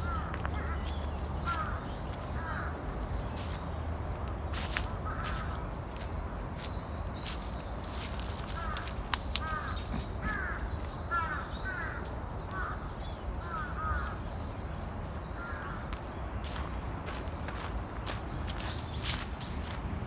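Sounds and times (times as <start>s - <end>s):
crows cawing: 0.0s - 2.8s, 5.0s - 5.6s, 8.4s - 14.2s, 15.4s - 15.9s.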